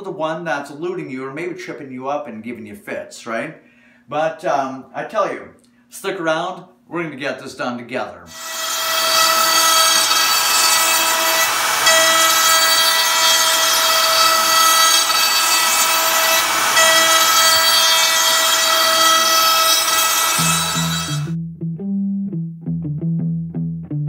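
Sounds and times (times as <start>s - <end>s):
bit cutting wood hiss: 8.3s - 21.3s
router spindle whine: 8.3s - 21.4s.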